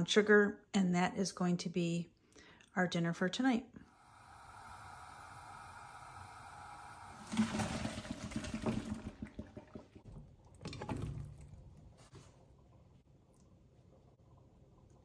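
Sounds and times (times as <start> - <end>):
gas burner hiss: 3.9 - 7.3
water pouring: 3.9 - 15.0.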